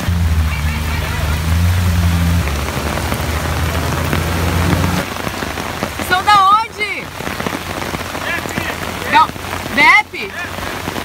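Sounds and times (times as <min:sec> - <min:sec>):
vehicle engine hum: 0:00.0 - 0:06.3
heavy rain pouring on street: 0:00.0 - 0:11.0.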